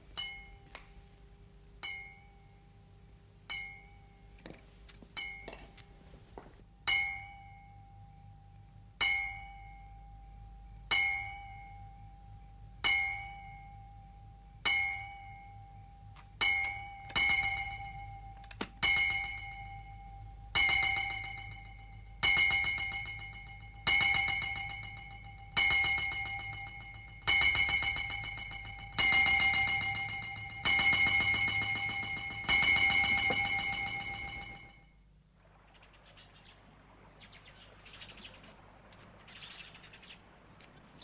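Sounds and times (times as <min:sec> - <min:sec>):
bell-like metallic tone strikes: 0:14.6 - 0:34.9.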